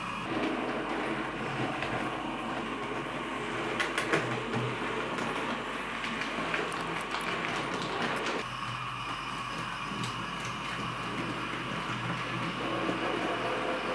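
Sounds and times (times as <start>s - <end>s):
model train whirring and rattling: 0.0s - 13.9s.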